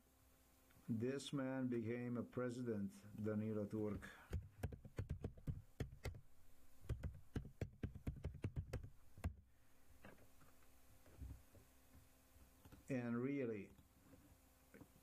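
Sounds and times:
computer keyboard typing: 0:04.3 - 0:06.2, 0:06.8 - 0:09.4.

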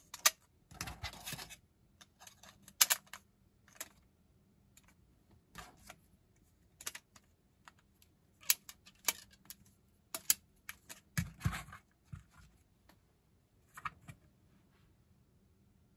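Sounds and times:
plastic parts clicking together: 0:00.0 - 0:04.0, 0:06.8 - 0:11.5.

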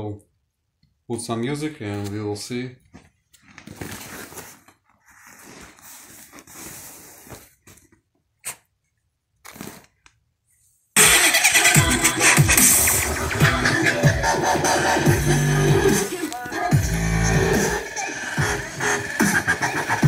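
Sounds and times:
electronic music from speaker: 0:11.0 - 0:20.0.

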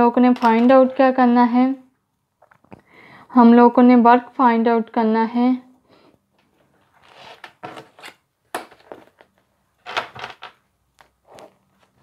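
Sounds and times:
pens clicking and rustling: 0:00.3 - 0:00.9.

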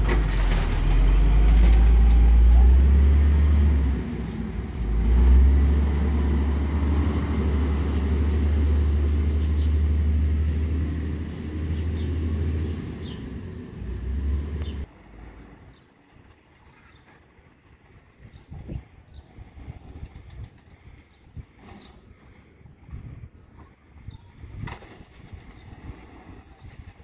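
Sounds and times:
garbage truck engine rumble: 0:00.0 - 0:16.2.

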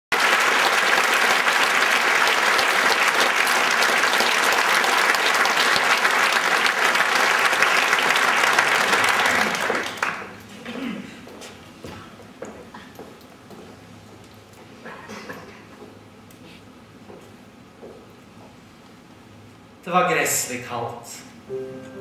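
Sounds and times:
audience applauding: 0:00.1 - 0:10.4.

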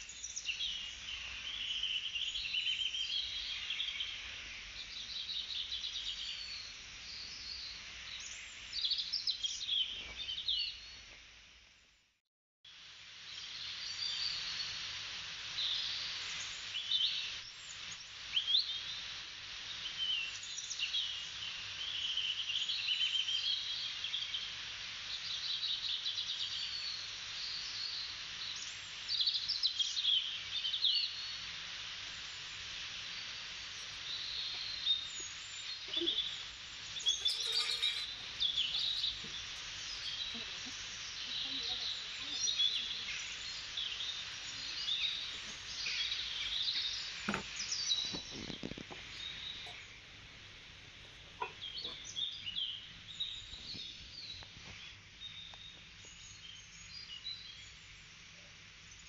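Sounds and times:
steady background hiss: 0:00.0 - 0:12.0, 0:12.7 - 0:59.0
small birds chirping: 0:25.1 - 0:59.0.

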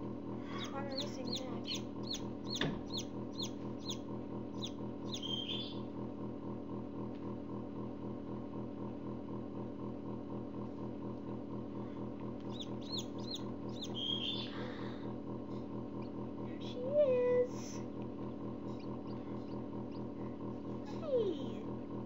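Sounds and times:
incubator humming: 0:00.0 - 0:22.0
chick peeping: 0:00.6 - 0:05.8, 0:12.5 - 0:14.5.

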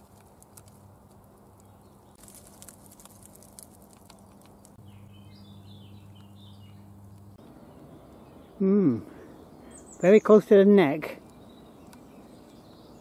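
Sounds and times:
light ticks and crackles: 0:00.0 - 0:04.8
low steady hum: 0:00.0 - 0:09.8.

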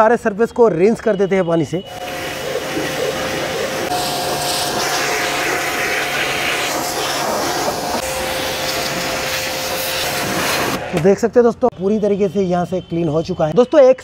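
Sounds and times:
pressure washer spray hissing: 0:01.9 - 0:11.1
pump motor humming: 0:01.9 - 0:11.1.

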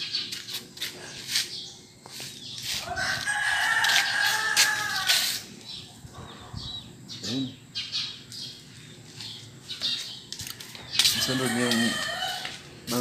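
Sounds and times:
rooster crowing: 0:02.8 - 0:05.4, 0:11.2 - 0:12.7.

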